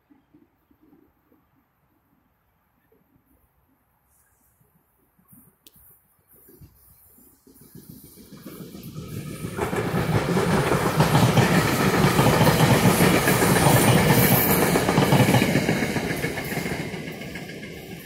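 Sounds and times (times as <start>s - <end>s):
train wheels rumbling on rail: 6.7s - 18.0s.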